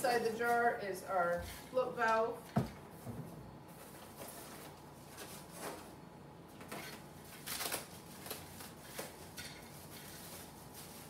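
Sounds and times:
packing wrap crinkling: 6.7s - 11.0s.

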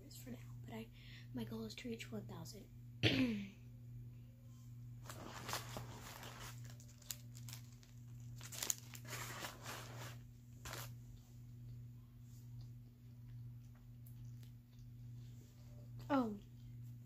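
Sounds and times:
steady low hum: 0.0s - 17.0s
crinkling: 5.0s - 11.0s.

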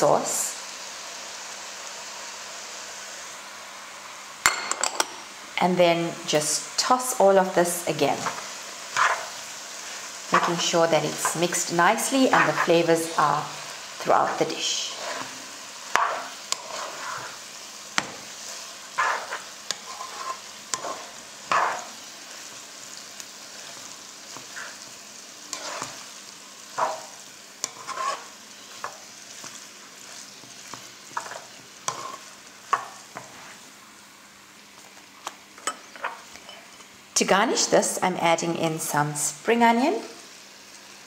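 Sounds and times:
food rustling in pan: 7.7s - 37.0s
plastic spoon scraping pan: 16.0s - 17.4s, 19.0s - 21.9s, 26.8s - 28.3s.

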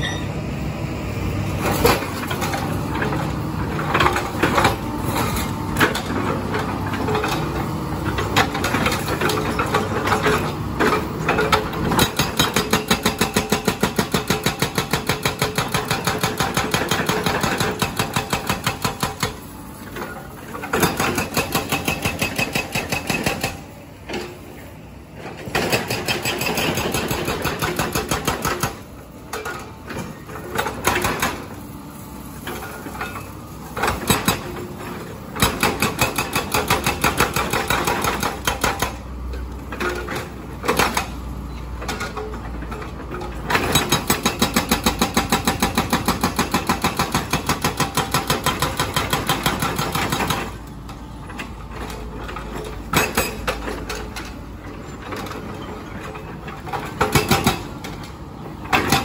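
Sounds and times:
excavator engine running: 0.0s - 59.0s
hydraulic breaker hammering concrete: 5.8s - 19.9s, 20.6s - 23.7s, 25.4s - 29.0s, 29.9s - 31.6s, 33.8s - 39.1s, 43.5s - 50.6s, 52.9s - 53.9s, 56.7s - 57.8s, 58.6s - 59.0s.

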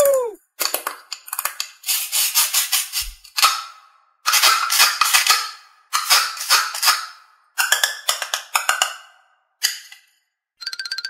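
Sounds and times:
toy halves crackling clicks: 4.3s - 9.0s.

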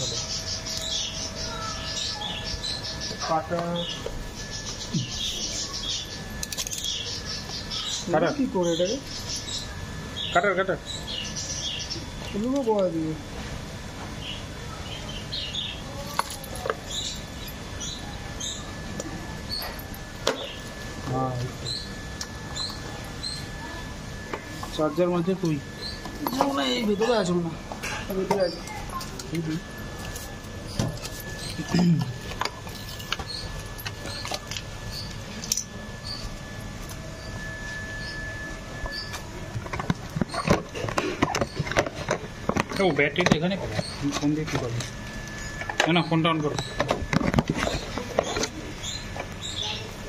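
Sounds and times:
small birds chirping: 0.0s - 13.1s, 14.2s - 23.9s, 24.7s - 29.8s, 30.6s - 39.4s, 40.1s - 46.9s, 47.6s - 50.0s
faint steady high tone: 0.0s - 13.3s, 14.2s - 50.0s.

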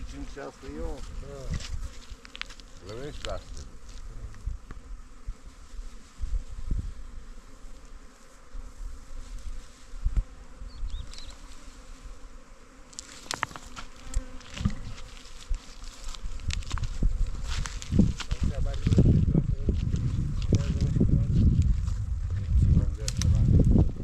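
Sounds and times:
bees buzzing: 0.0s - 21.4s
branch snapping and crackling: 12.9s - 14.5s, 15.5s - 16.9s, 23.0s - 23.4s.

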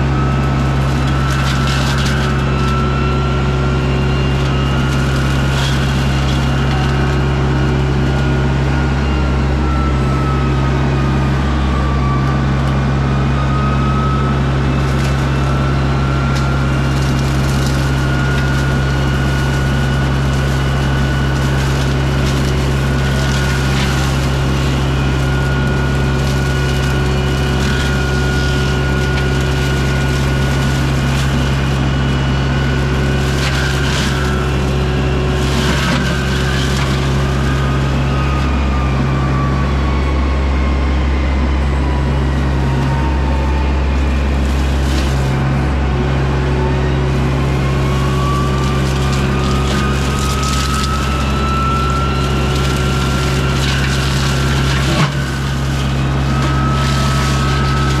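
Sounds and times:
diesel excavator engine running: 0.0s - 58.0s
hydraulic mulcher whine: 0.0s - 58.0s.

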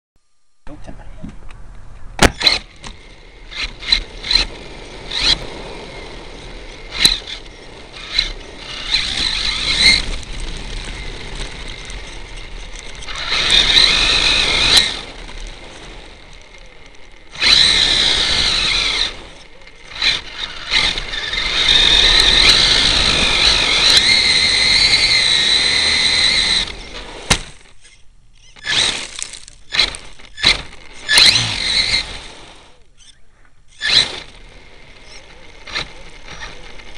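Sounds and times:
tyres on gravel: 0.9s - 36.9s
rc truck motor whining: 2.2s - 36.9s.

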